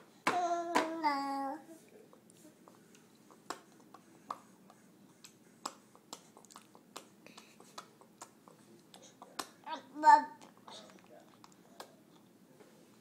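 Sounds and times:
baby chewing and lip smacking: 2.1 - 12.4.

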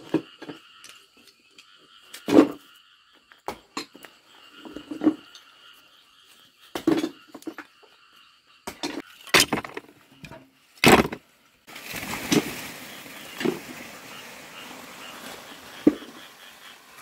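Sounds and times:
steady outdoor hiss: 0.0 - 17.0
cement shards clattering into basket: 9.1 - 10.0.

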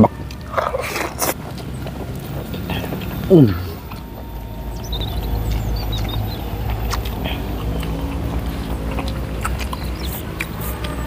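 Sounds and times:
low engine-like hum: 0.0 - 11.0
faint high chirps: 3.0 - 11.0.

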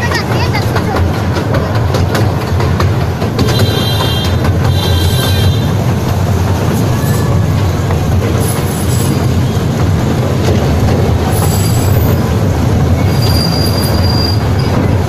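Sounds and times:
train wheels rumbling on track: 0.0 - 15.0
high wheel squeals: 11.3 - 12.2, 12.9 - 14.9.

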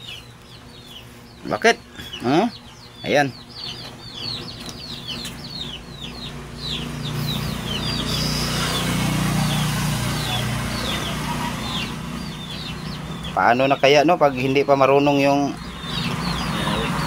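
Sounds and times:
chicks peeping: 0.0 - 17.0
low steady drone: 5.8 - 17.0.

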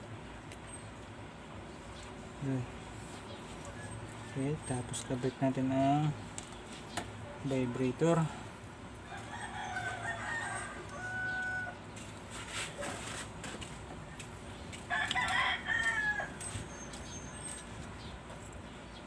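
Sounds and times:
rooster crowing: 9.0 - 11.9, 14.9 - 16.5.

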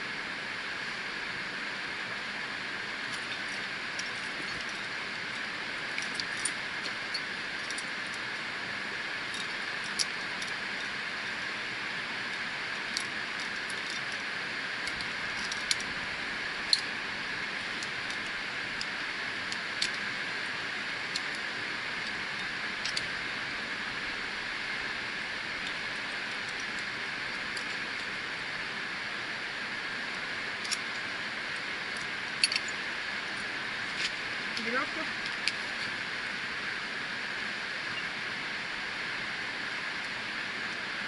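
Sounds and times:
steady hiss: 0.0 - 41.0
carabiners clinking: 30.6 - 36.0.

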